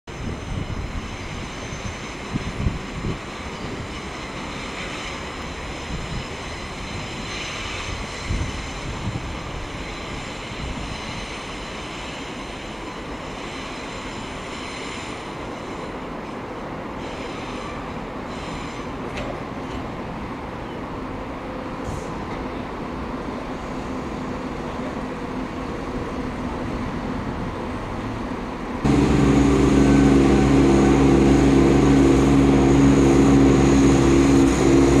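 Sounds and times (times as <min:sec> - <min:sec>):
wind buffeting microphone: 0:00.1 - 0:04.8, 0:05.4 - 0:11.4
train rumbling: 0:00.1 - 0:35.0.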